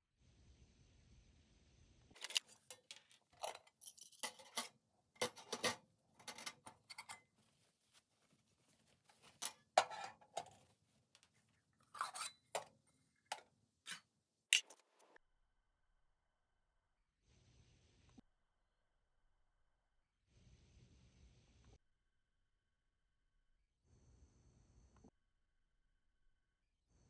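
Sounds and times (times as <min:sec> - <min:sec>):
metal gear clinking on wire rack: 0:02.2 - 0:07.2.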